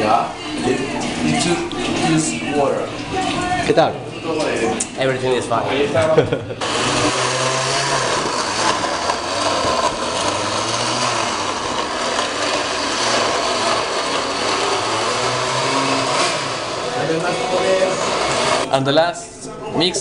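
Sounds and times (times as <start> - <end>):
blender running: 6.6 - 18.7.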